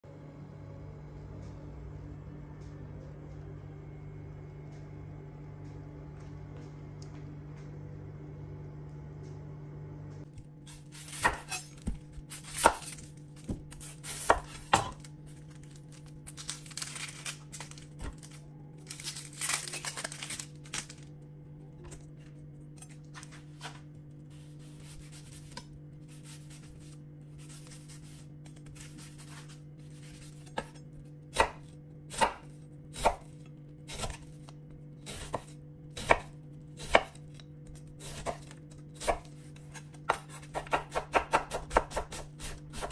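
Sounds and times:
steady low hum: 0.0 - 42.9
knife striking cutting board: 10.7 - 15.1.

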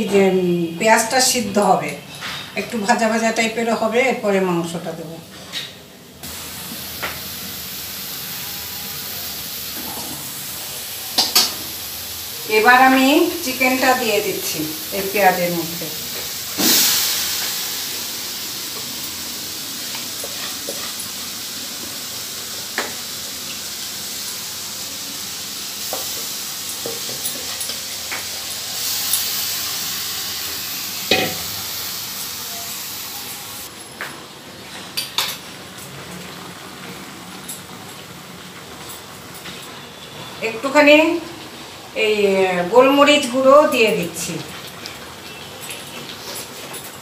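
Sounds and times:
chicken sizzling in hot pan: 6.2 - 33.7.

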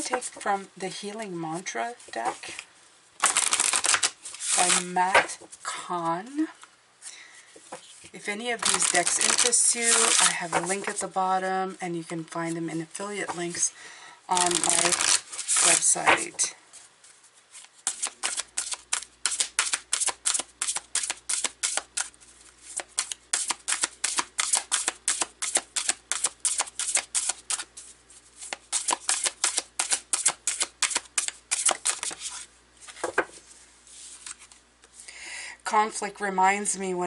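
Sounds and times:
cards being shuffled: 2.0 - 5.5, 7.6 - 11.1, 14.3 - 16.4, 17.0 - 35.0.

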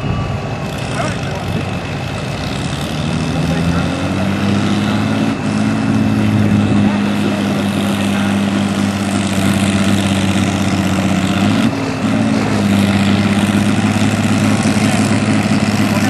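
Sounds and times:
tractor engine running hard: 0.0 - 16.0.

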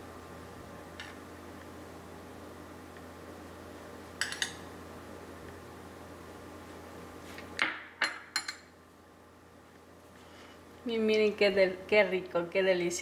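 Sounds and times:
cutlery clinking on ceramic plate: 4.2 - 4.6.

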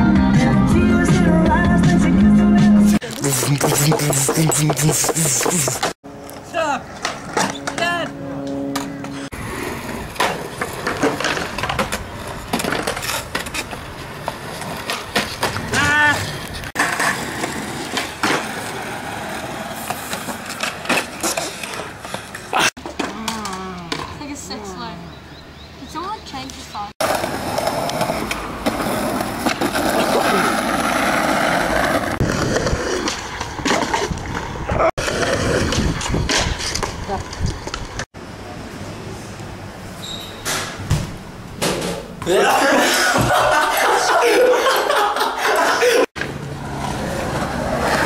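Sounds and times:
skateboard wheels rolling on concrete: 0.0 - 24.5, 26.5 - 40.1, 41.1 - 48.0
skateboard clacking on ground: 9.9 - 24.2, 27.0 - 38.0.

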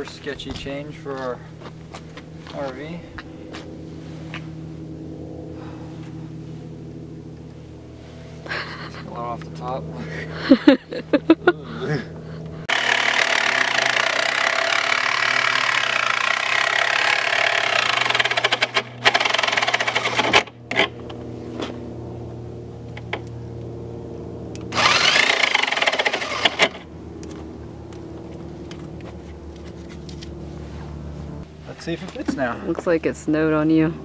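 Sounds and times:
jigsaw cutting: 12.7 - 20.5, 24.7 - 26.8.

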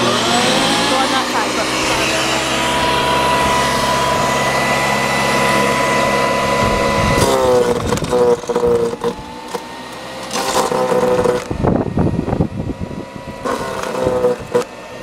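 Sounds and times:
wood chipper whining: 0.0 - 15.0.

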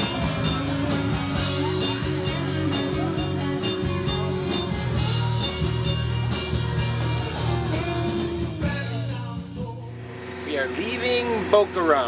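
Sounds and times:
rock music with guitar and drums: 0.0 - 10.6.

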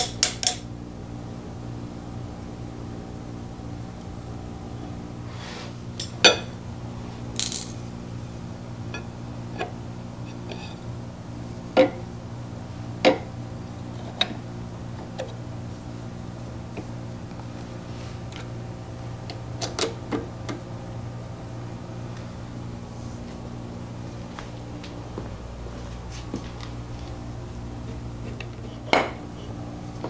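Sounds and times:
steady low hum: 0.0 - 30.0
metal parts clinking and knocking: 7.4 - 7.8.

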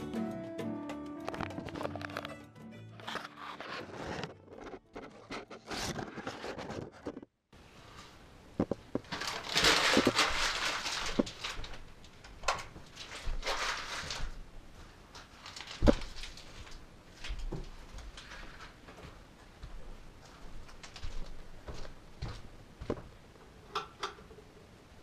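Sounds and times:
newspaper rustling and crinkling: 3.0 - 7.3, 8.6 - 18.8, 20.6 - 21.6.

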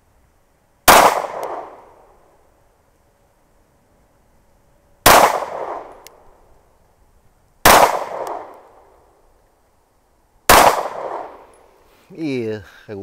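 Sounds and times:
pistol shots with echo: 0.9 - 2.0, 5.0 - 6.0, 7.6 - 8.9, 10.5 - 11.4.

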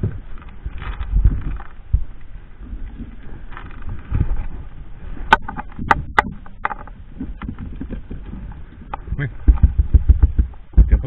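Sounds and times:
kayak scraping against bank: 0.0 - 10.7
gear knocking on hull: 5.3 - 11.0.

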